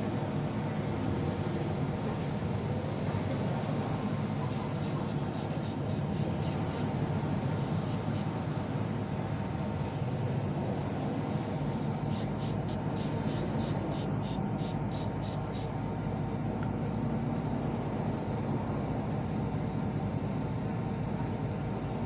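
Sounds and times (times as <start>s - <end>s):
spray bottle squirting: 4.5s - 6.9s, 7.8s - 8.3s, 12.1s - 15.7s.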